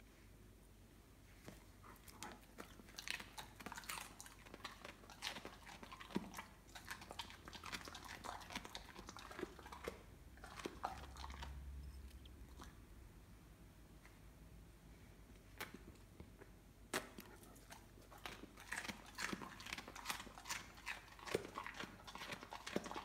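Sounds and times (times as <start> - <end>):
dog chewing cabbage leaf: 1.8 - 11.8, 17.0 - 23.0.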